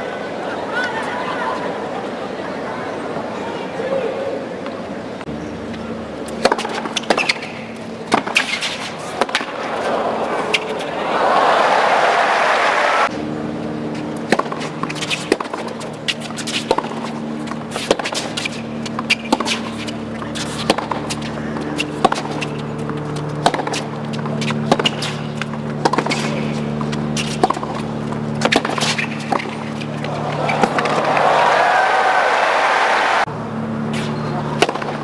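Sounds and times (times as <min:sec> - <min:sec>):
ball bouncing on court: 0:06.3 - 0:08.6, 0:14.2 - 0:31.4, 0:34.0 - 0:35.0
tennis ball struck by racquet: 0:06.3 - 0:10.8, 0:14.2 - 0:31.6, 0:33.9 - 0:35.0.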